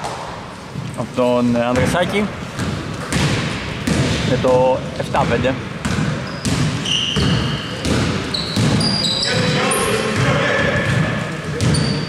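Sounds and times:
sneakers squeaking: 0:00.0 - 0:12.0
basketball bouncing on court: 0:01.7 - 0:12.0
players' voices: 0:07.6 - 0:12.0.

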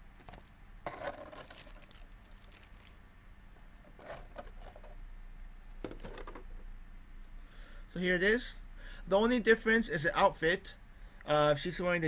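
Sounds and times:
plastic wrapping crinkling: 0:00.2 - 0:03.0.

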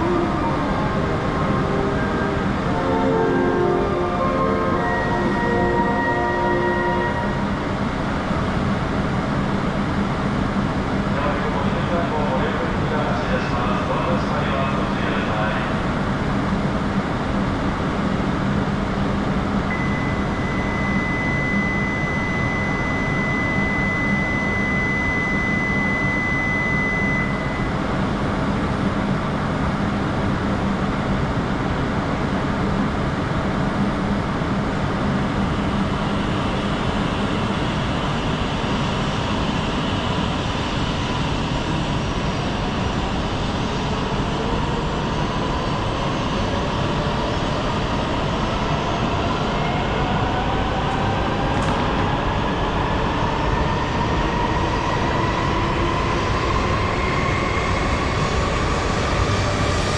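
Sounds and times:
steady high tone: 0:00.0 - 0:07.9, 0:19.7 - 0:27.8
train wind and rail roar: 0:00.0 - 0:59.9.

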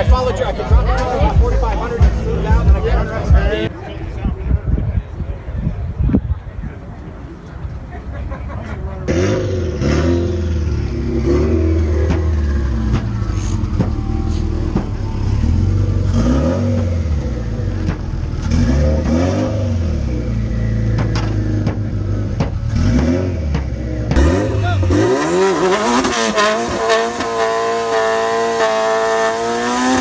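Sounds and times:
car engine revving: 0:08.9 - 0:30.0.

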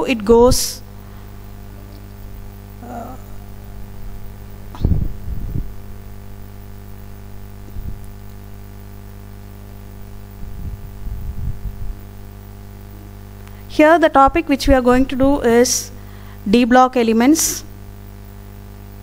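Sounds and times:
electrical mains hum: 0:00.0 - 0:19.0
short low thumps: 0:02.8 - 0:05.8.

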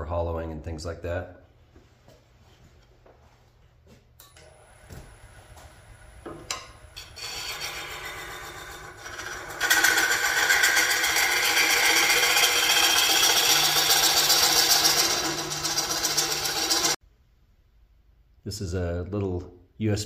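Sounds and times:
lathe tool scraping wood: 0:07.0 - 0:17.0.

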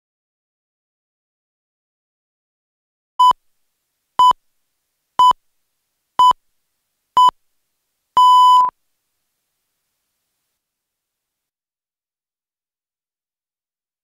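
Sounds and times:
countdown beeps: 0:08.2 - 0:08.7.

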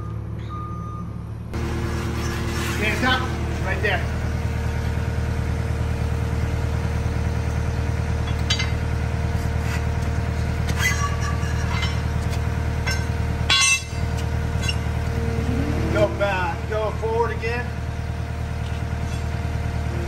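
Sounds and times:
heavy equipment engine idling: 0:00.0 - 0:20.0
metal clinks and knocks: 0:10.8 - 0:14.0.

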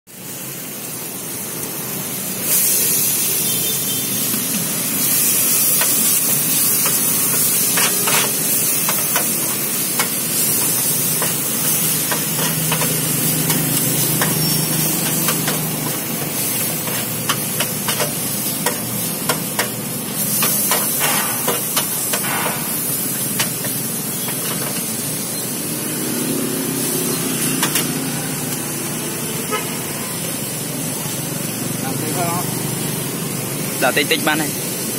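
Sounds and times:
meat and noodles sizzling: 0:00.1 - 0:34.9
metal spatula scraping pan: 0:06.8 - 0:09.5.

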